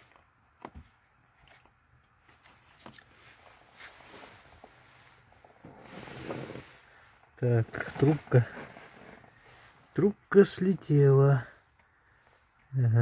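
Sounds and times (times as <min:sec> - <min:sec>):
handling and rustling noise: 0:00.0 - 0:11.1.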